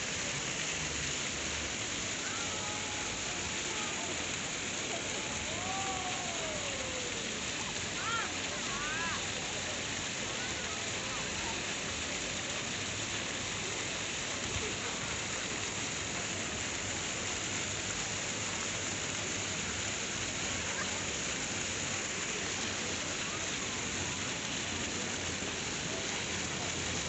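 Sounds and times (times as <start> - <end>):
fountain water splashing on stone: 0.0 - 27.0.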